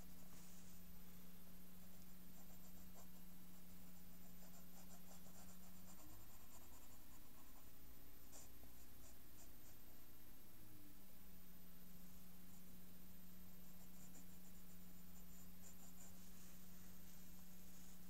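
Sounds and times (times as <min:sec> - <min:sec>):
steady low hum: 0:00.0 - 0:18.0
pencil scratching on paper: 0:01.8 - 0:09.9, 0:15.2 - 0:16.7.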